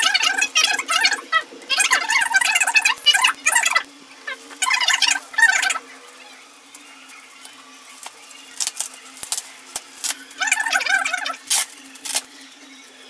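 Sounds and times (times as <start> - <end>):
plastic wrapping crinkling: 6.7 - 12.4
plastic squeaky stretch: 8.0 - 12.3.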